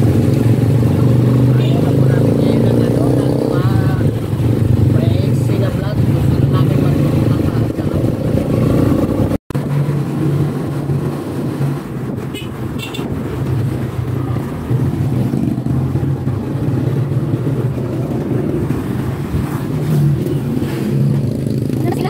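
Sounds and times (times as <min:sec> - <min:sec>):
road and wind noise: 0:00.0 - 0:22.0.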